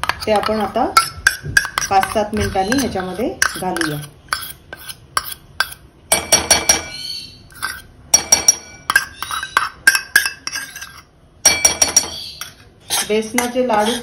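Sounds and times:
glass bowl clinking against steel pan: 8.1 - 13.6.

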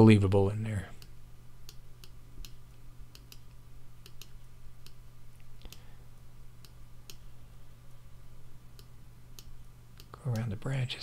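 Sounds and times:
steady low hum: 0.0 - 11.0
computer mouse clicking: 1.0 - 5.0, 8.8 - 10.6.

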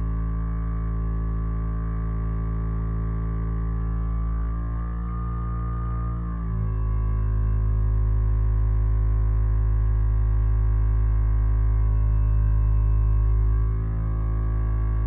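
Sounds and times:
vibrating roller motor hum: 0.0 - 15.0.

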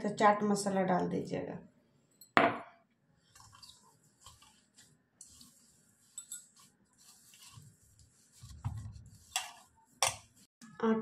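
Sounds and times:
soft squishing of kneaded food: 3.0 - 10.6.

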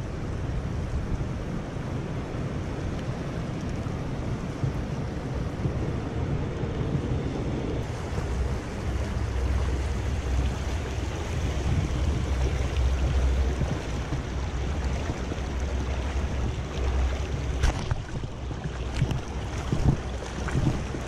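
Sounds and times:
low rumble: 2.0 - 21.0
water flowing over stones: 7.8 - 21.0.

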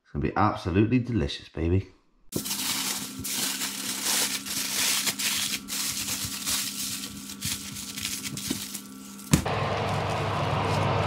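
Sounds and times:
fish sizzling and crackling: 2.3 - 9.4
steady hum: 2.3 - 11.0.

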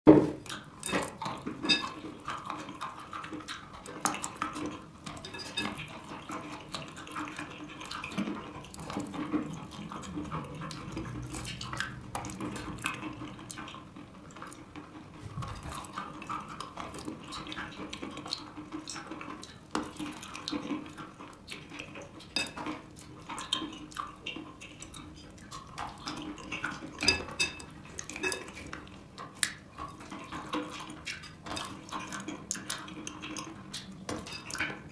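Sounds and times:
chewing wet chalk crunches: 0.4 - 34.9.

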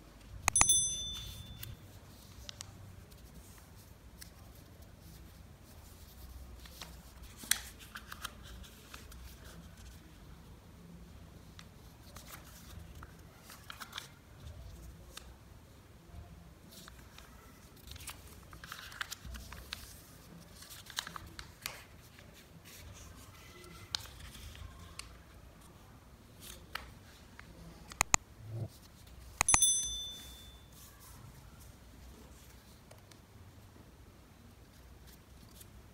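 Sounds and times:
short bright ding: 0.5 - 1.8, 29.4 - 30.7
paper rustling and crinkling: 6.6 - 10.0, 16.7 - 25.1.

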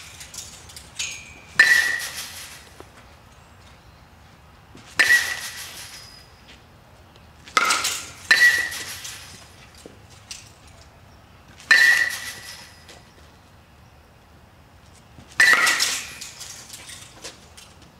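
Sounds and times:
metal bat pinging baseball: 1.0 - 2.7, 5.0 - 6.3, 7.5 - 9.3, 11.6 - 12.9, 15.4 - 16.3.

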